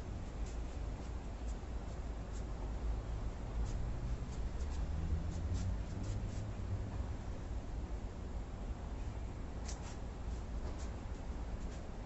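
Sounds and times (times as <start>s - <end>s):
scratchy swishes and scuffs: 0.2s - 2.6s, 3.5s - 6.7s, 9.6s - 12.0s.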